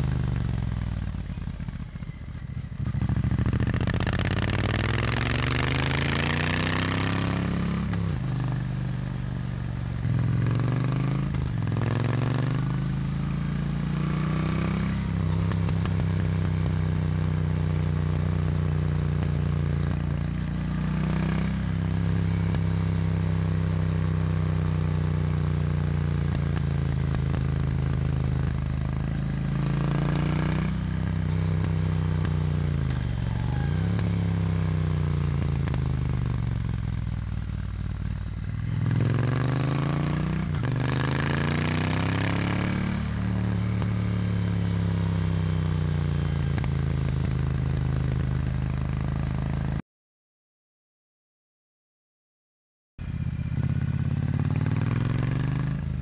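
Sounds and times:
motorcycle engine and exhaust: 0:00.0 - 0:49.8, 0:53.0 - 0:56.0.

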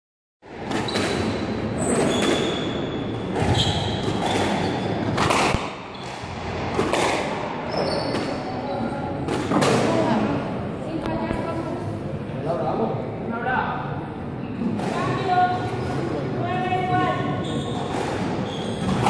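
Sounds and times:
shoes squeaking on wooden floor: 0:00.8 - 0:05.0, 0:17.4 - 0:19.0
squash ball cracks: 0:04.2 - 0:07.5.

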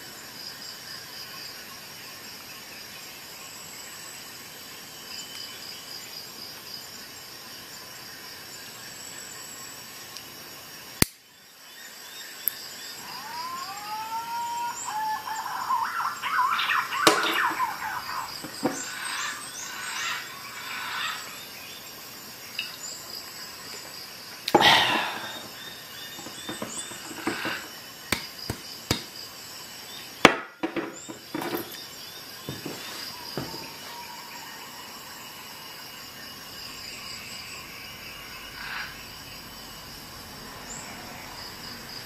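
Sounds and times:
sharp knocks of handling: 0:26.2 - 0:29.1.

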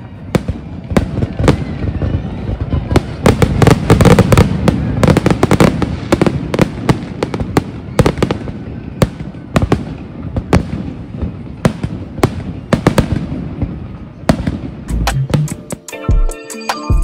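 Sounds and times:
fireworks bangs and crackles: 0:00.0 - 0:15.8.

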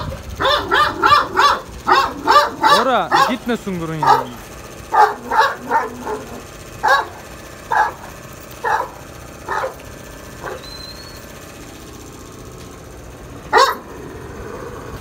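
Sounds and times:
dog barking: 0:00.0 - 0:09.8, 0:10.4 - 0:10.8, 0:13.5 - 0:13.9.

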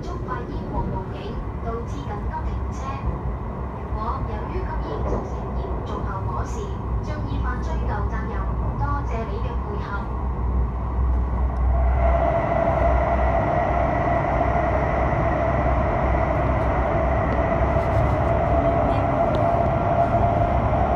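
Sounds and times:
high-speed train cabin noise: 0:00.0 - 0:20.9
steady whining tone: 0:10.8 - 0:20.9.

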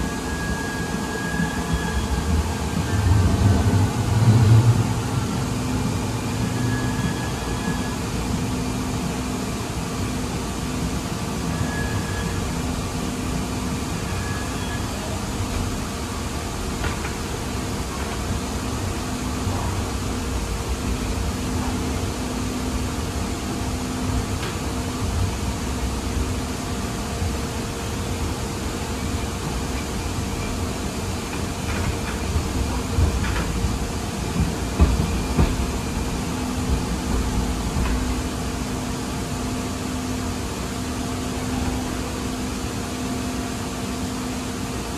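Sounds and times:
constant hum: 0:00.0 - 0:11.7
train wheels rumbling on track: 0:00.0 - 0:44.9.

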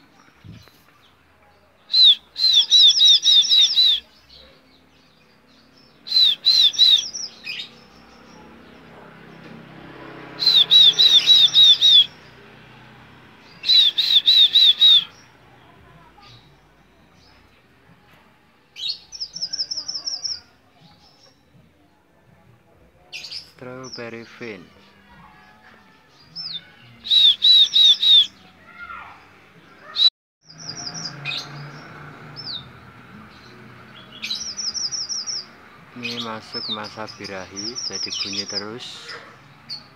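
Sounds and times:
finch chirping: 0:05.8 - 0:08.9, 0:10.4 - 0:12.3, 0:34.0 - 0:39.9
fast high bird trill: 0:06.0 - 0:07.8, 0:10.4 - 0:12.2, 0:13.6 - 0:15.2, 0:26.4 - 0:28.3.

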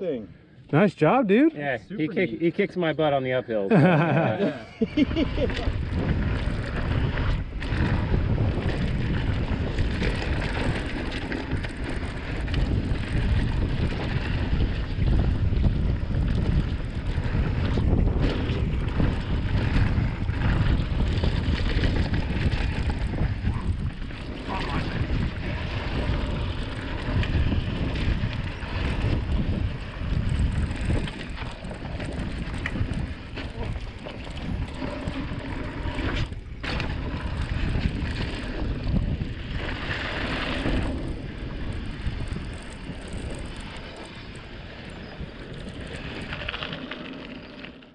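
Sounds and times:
wind buffeting microphone: 0:03.7 - 0:47.2
bike clicks and rattles: 0:04.9 - 0:47.9
bike tyres on dirt trail: 0:04.9 - 0:47.9.

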